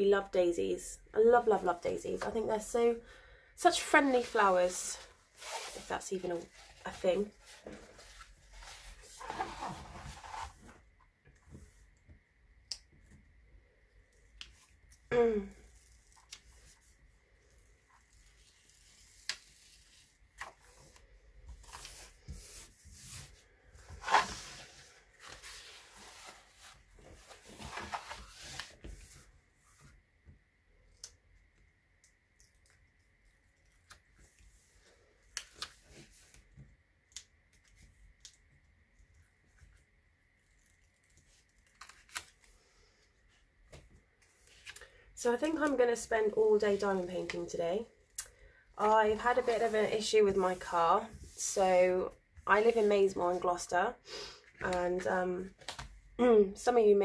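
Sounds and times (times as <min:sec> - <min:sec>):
plastic film rustling and crinkling: 0:03.8 - 0:10.7.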